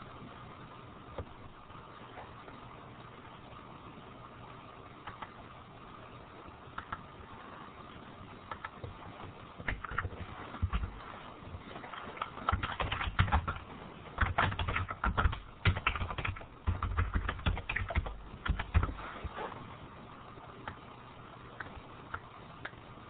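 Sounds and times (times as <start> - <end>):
typing on keyboard: 8.5 - 8.9, 9.7 - 10.9, 12.0 - 19.0.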